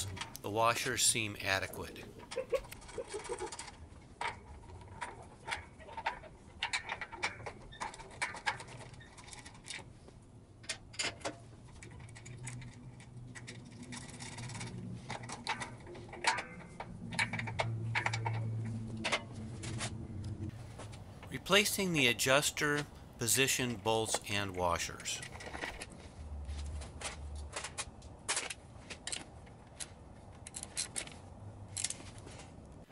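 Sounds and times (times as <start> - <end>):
low hum: 12.0 - 24.3.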